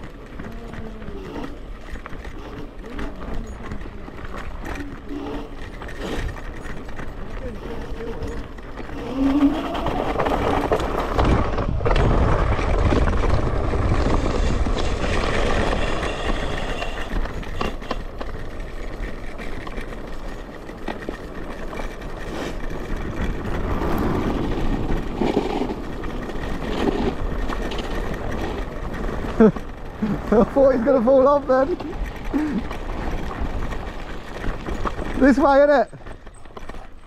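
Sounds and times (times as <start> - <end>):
wind rumble on microphone: 0.0 - 30.8
tyre noise: 0.0 - 37.0.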